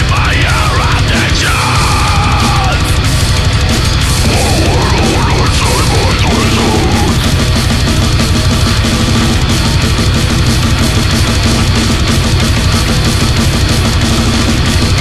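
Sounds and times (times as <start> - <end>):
distorted guitars: 0.0 - 15.0
pounding drums: 0.0 - 15.0
bending lead guitar notes: 4.0 - 7.6.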